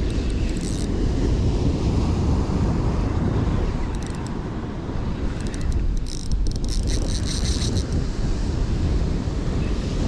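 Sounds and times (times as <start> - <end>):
spinning reel clicking: 0.0 - 0.9, 4.0 - 4.3, 5.4 - 8.0
wind buffeting microphone: 0.0 - 10.0.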